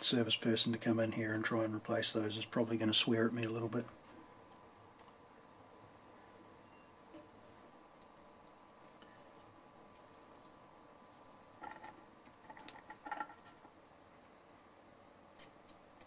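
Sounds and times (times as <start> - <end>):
faint high-pitched chirps: 6.6 - 11.6.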